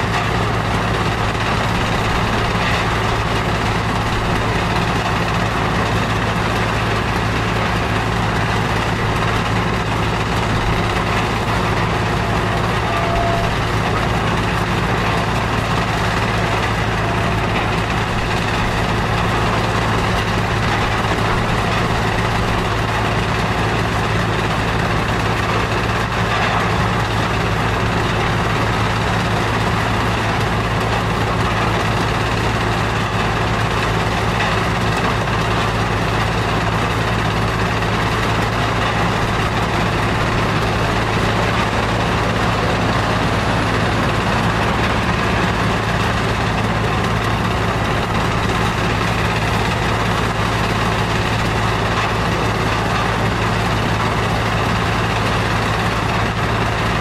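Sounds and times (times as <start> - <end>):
stone crusher machinery running: 0.0 - 57.0
constant low hum: 36.5 - 56.7.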